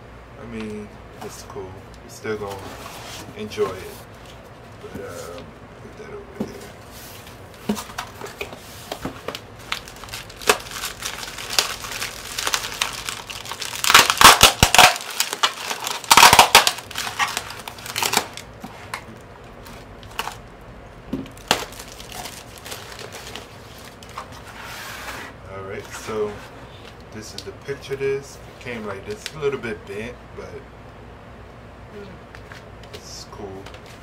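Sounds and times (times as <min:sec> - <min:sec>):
bubble wrap crinkling and rustling: 0:06.8 - 0:20.4, 0:21.2 - 0:24.7.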